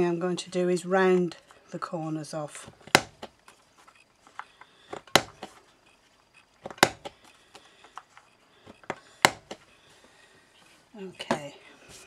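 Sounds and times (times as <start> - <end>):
corner punch snapping through card: 5.0 - 5.5, 6.6 - 7.2.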